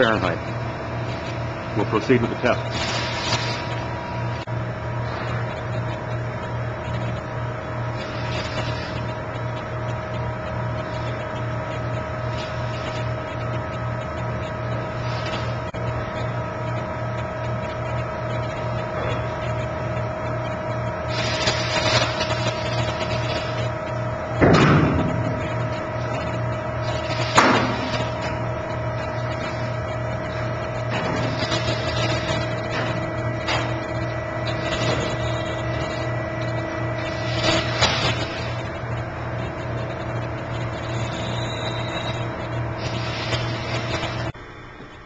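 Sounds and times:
test rig humming: 0:00.0 - 0:45.0
sharp bangs from steel structure: 0:24.4 - 0:25.6.

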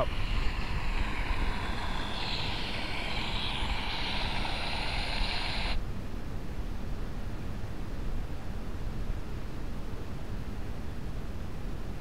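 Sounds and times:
high buzzing hiss: 0:00.0 - 0:05.8
steady outdoor hiss: 0:00.0 - 0:12.0.

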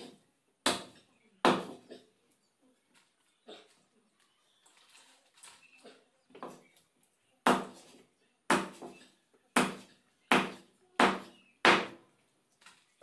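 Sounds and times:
machete chopping on wooden block: 0:00.7 - 0:01.8, 0:07.5 - 0:07.8, 0:08.5 - 0:08.9, 0:09.6 - 0:12.0.

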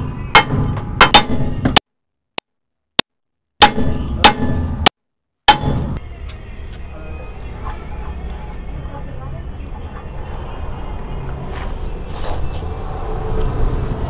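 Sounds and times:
hammer blows on metal: 0:05.5 - 0:06.0.

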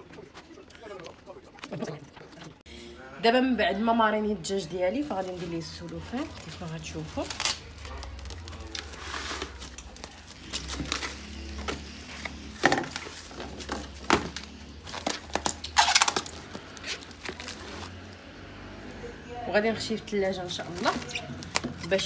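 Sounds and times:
cling film crinkling: 0:05.0 - 0:18.3.

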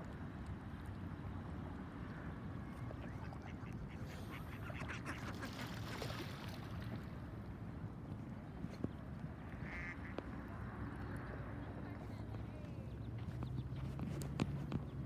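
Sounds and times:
ducks quacking: 0:02.9 - 0:05.8, 0:09.6 - 0:10.2.

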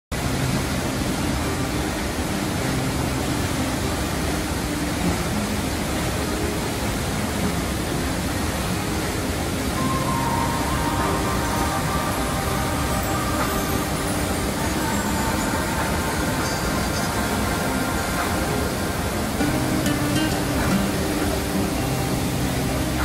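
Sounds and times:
waterfall rushing: 0:00.1 - 0:23.0.

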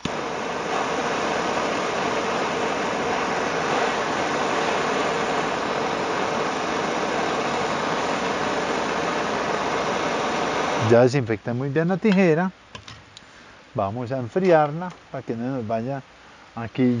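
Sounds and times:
gas torch hissing: 0:00.0 - 0:12.4.

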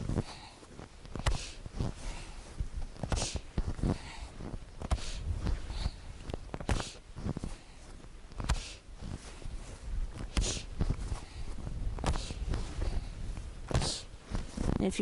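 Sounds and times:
clothing rustling: 0:00.0 - 0:15.0
sharp breaths in and out: 0:00.1 - 0:14.2
fists thumping chest: 0:01.1 - 0:01.9, 0:03.0 - 0:04.0, 0:04.8 - 0:07.0, 0:08.3 - 0:08.8, 0:10.1 - 0:13.0, 0:13.6 - 0:14.5.

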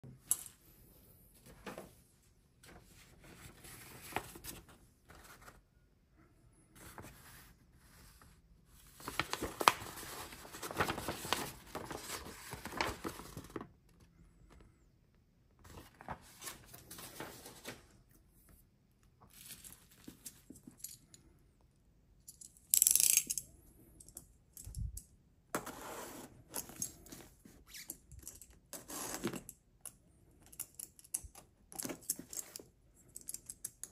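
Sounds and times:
paper sheets rustling: 0:06.8 - 0:13.7, 0:15.6 - 0:17.9.

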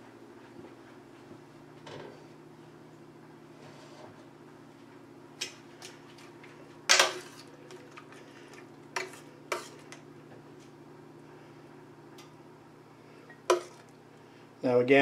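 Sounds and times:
saucepan and ladle clanking: 0:13.4 - 0:13.9.

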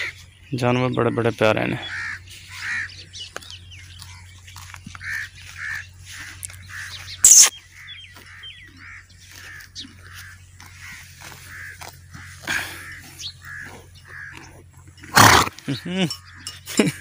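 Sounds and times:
small birds chirping: 0:00.0 - 0:17.0
horse chewing grass: 0:02.6 - 0:15.6.

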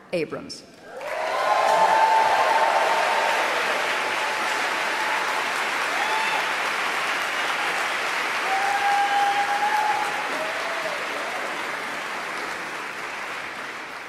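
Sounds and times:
audience applauding: 0:00.9 - 0:14.0.

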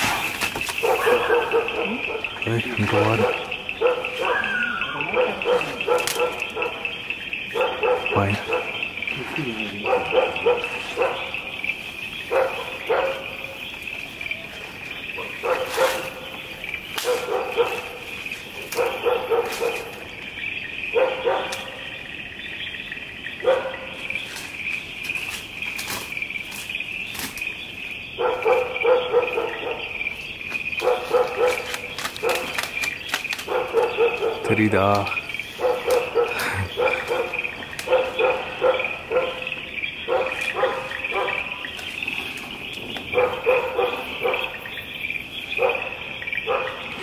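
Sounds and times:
dog barking: 0:00.8 - 0:09.0, 0:09.7 - 0:11.6, 0:12.3 - 0:13.6, 0:15.1 - 0:16.4, 0:17.0 - 0:20.0, 0:20.9 - 0:21.9, 0:23.4 - 0:24.0, 0:28.2 - 0:30.0, 0:30.8 - 0:32.6, 0:33.4 - 0:35.0, 0:35.6 - 0:41.8, 0:43.1 - 0:44.7, 0:45.5 - 0:47.0.

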